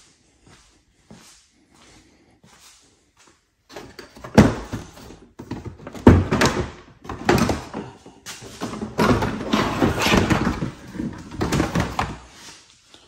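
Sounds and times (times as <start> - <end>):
plastic rattling and scraping: 3.7 - 12.3.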